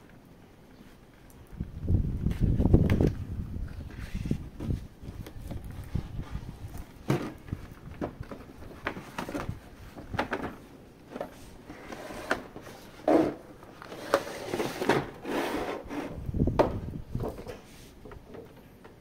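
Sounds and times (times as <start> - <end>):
rubbing and scraping packaging: 3.7 - 16.2.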